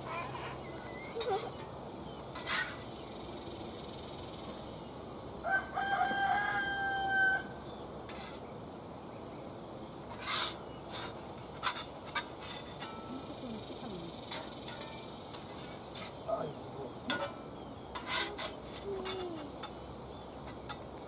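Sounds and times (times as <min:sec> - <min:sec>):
metal utensils scraping on grill: 0:00.1 - 0:03.0, 0:08.1 - 0:08.5, 0:10.1 - 0:16.3, 0:16.9 - 0:21.0
rooster crowing: 0:05.4 - 0:07.6.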